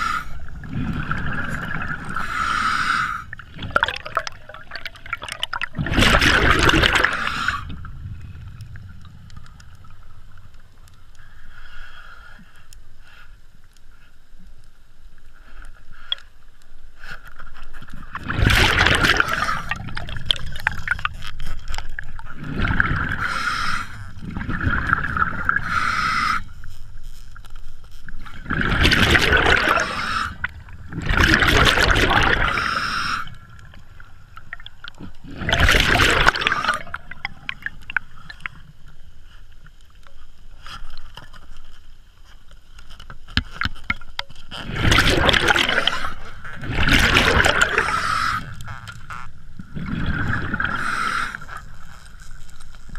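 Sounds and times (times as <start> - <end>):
bubbling exhalations: 0.3 - 10.4, 18.0 - 26.3, 28.3 - 38.6, 44.5 - 52.0
hissing regulator inhalations: 23.1 - 24.2, 25.5 - 26.7, 29.7 - 30.5, 32.4 - 33.6, 47.6 - 48.8, 50.6 - 51.7.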